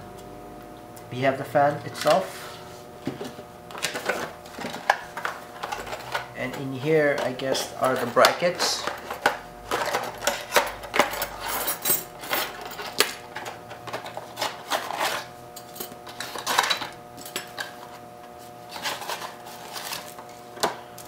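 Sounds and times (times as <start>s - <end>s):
cardboard and paper rustling: 18.7s - 20.4s.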